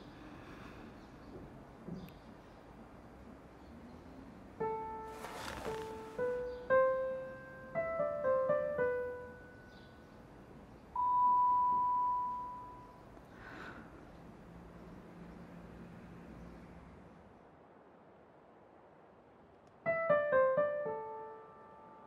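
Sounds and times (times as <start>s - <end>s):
piano melody: 4.6s - 13.2s, 19.8s - 22.0s
clear pure tone: 10.9s - 13.1s.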